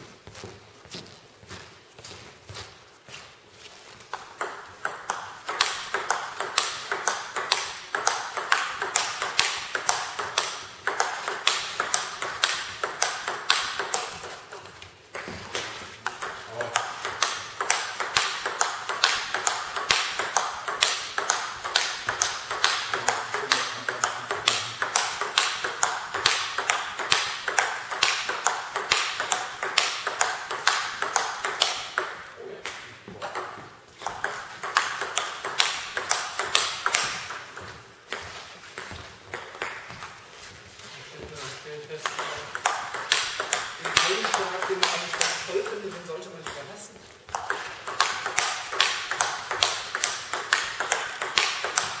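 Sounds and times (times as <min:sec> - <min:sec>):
table tennis ball clicking: 0:04.1 - 0:40.2, 0:42.0 - 0:46.7, 0:47.3 - 0:52.0.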